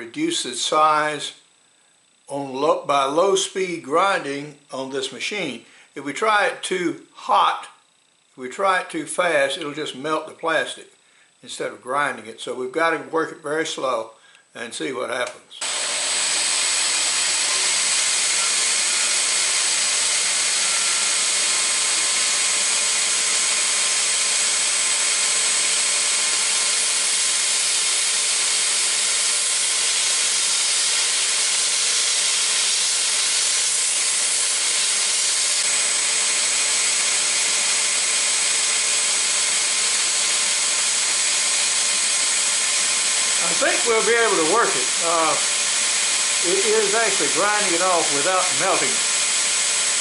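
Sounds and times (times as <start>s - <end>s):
belt grinder grinding plastic: 15.6s - 50.0s.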